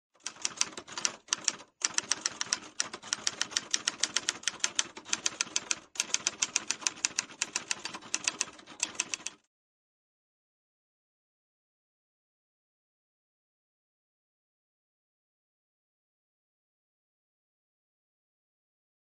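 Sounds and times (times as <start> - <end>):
manual typewriter typing: 0.2 - 9.4.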